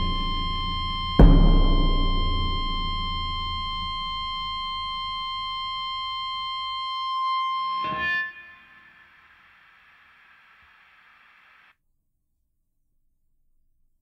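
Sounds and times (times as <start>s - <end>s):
short loud hit: 0.0s - 5.5s
low drone: 0.0s - 6.6s
held high tone: 0.0s - 9.2s.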